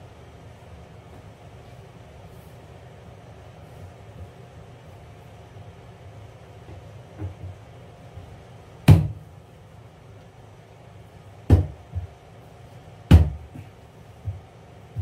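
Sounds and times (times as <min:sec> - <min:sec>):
sharp knocks on plywood floor: 0:08.9 - 0:09.2, 0:11.5 - 0:12.1, 0:13.1 - 0:13.5.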